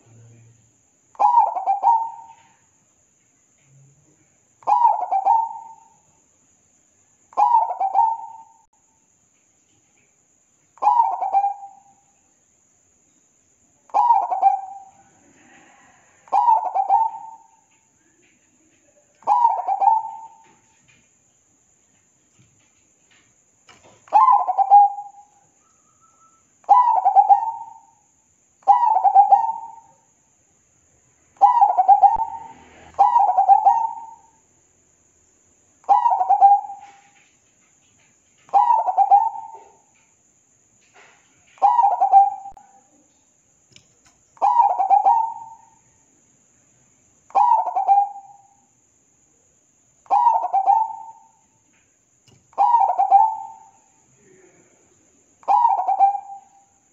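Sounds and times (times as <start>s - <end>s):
dove cooing: 1.2s - 2.6s, 4.6s - 6.0s, 7.4s - 8.6s, 10.8s - 11.9s, 13.9s - 17.6s, 19.2s - 20.6s, 24.1s - 25.3s, 26.7s - 27.9s, 28.6s - 29.9s, 31.4s - 34.3s, 35.9s - 37.2s, 38.5s - 39.9s, 41.6s - 42.7s, 44.4s - 45.7s, 47.3s - 48.4s, 50.1s - 51.4s, 52.5s - 53.7s, 55.4s - 56.6s.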